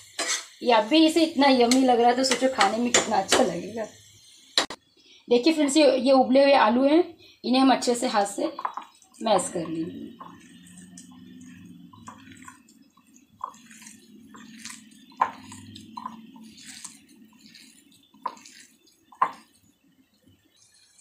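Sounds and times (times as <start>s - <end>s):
potatoes being mashed squishing: 8.7s - 19.6s.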